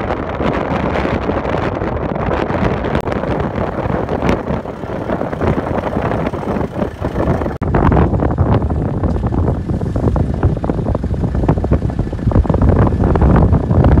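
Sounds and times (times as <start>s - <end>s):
wind blasting on microphone: 0.0s - 14.0s
tractor diesel engine running: 3.0s - 14.0s.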